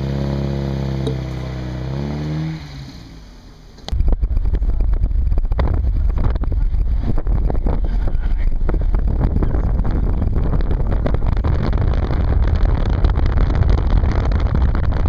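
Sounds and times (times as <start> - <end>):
car driving rumble: 0.0 - 15.0
car engine: 0.0 - 15.0
wind buffeting on microphone: 3.9 - 15.0.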